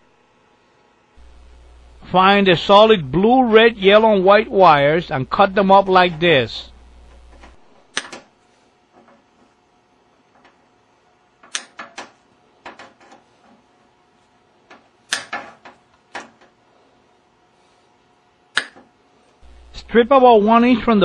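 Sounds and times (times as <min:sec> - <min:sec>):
wire cutters snipping: 0:11.5 - 0:12.1, 0:15.1 - 0:15.4, 0:18.5 - 0:18.8.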